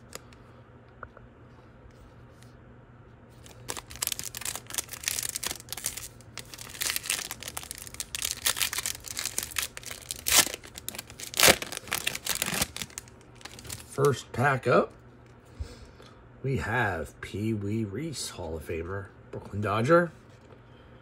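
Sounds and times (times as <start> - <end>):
plastic wrapper tearing and crinkling: 3.4 - 14.2.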